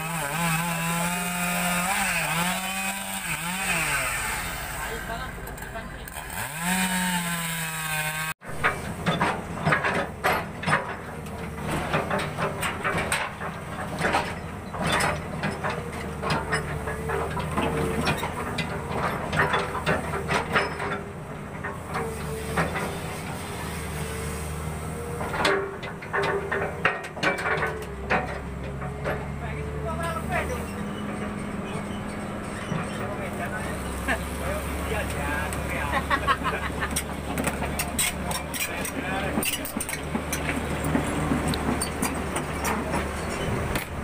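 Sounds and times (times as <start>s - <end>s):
chainsaw revving: 0.0s - 8.4s
excavator engine running: 0.0s - 44.0s.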